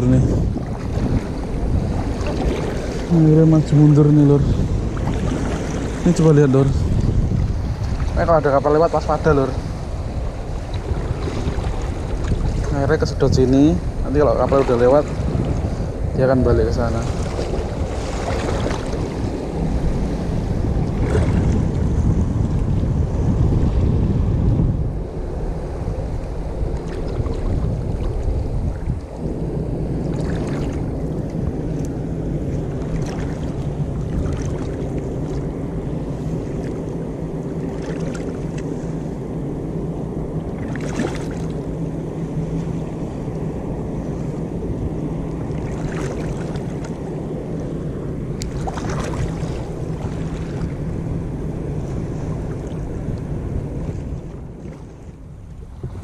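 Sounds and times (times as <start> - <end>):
short water splashes: 0.0 - 9.7, 10.4 - 15.8, 16.7 - 19.6, 20.8 - 21.9, 30.0 - 35.6, 37.5 - 38.7, 40.6 - 41.6, 45.5 - 47.1, 48.4 - 50.8
sea water lapping and sloshing: 0.0 - 56.0
steady low hum: 0.0 - 56.0
wind on microphone: 0.0 - 56.0.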